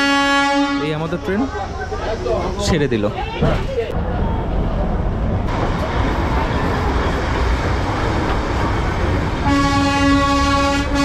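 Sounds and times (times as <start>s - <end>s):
locomotive horn: 0.0s - 1.2s, 9.4s - 11.0s
train rumbling along track: 0.0s - 11.0s.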